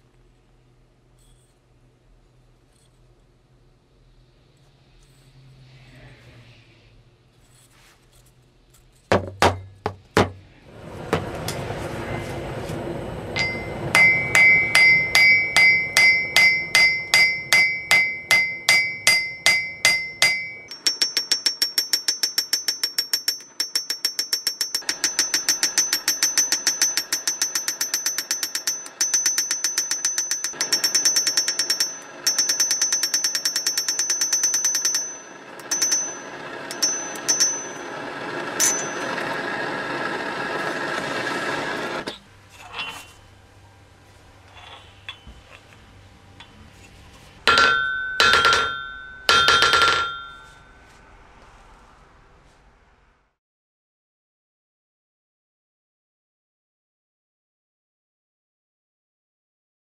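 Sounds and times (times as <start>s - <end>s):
steel hammered on anvil: 13.4s - 37.9s, 38.6s - 39.3s, 47.5s - 50.6s.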